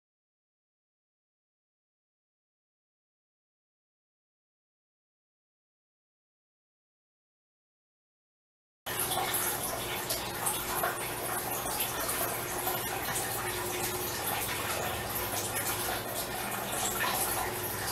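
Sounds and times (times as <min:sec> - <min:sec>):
rushing water-like noise: 0:08.9 - 0:17.9.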